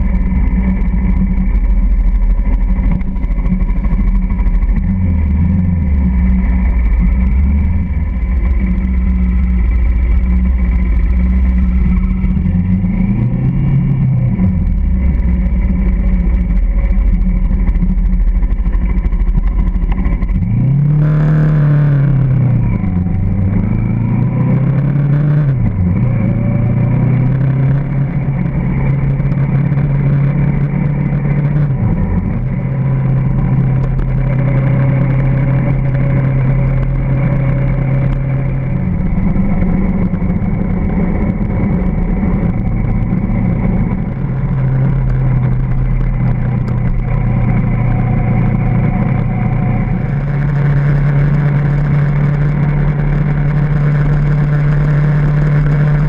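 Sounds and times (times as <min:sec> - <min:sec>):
motorcycle engine rumbling: 0:00.0 - 0:56.0
road noise: 0:00.0 - 0:56.0
wind noise: 0:00.0 - 0:56.0.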